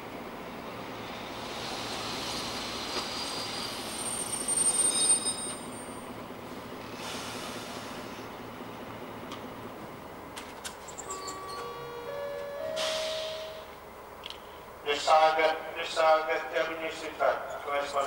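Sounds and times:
train rumbling: 0.0s - 18.0s
brake squeal: 1.8s - 6.1s, 10.8s - 11.8s, 12.6s - 13.7s.

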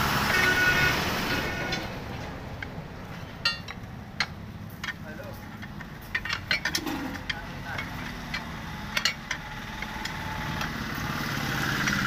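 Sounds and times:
tyre levers clinking on rim: 2.6s - 10.7s.

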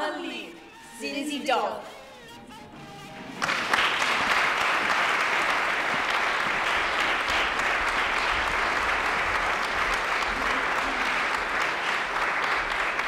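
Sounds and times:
audience applauding: 3.3s - 13.0s.

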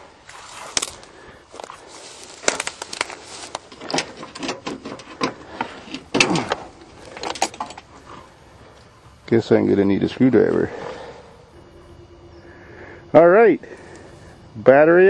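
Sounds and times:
dry grass rustling and crackling: 0.0s - 9.3s.

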